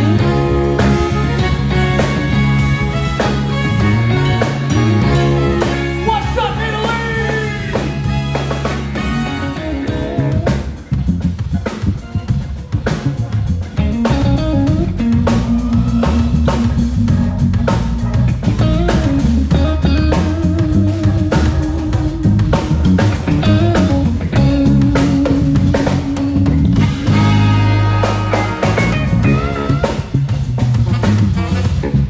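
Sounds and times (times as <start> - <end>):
bass line: 0.0 - 32.0
drum kit groove: 0.0 - 32.0
electric guitar chords: 0.0 - 32.0.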